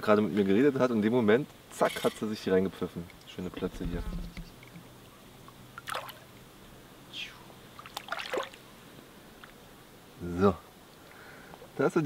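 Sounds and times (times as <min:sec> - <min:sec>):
fish splashing in water: 0:05.8 - 0:06.3, 0:07.8 - 0:08.6.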